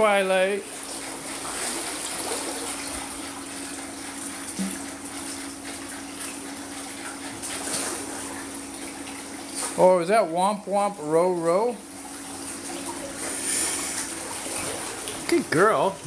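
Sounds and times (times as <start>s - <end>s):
low steady hum: 0.0s - 16.0s
water rushing: 12.5s - 16.0s.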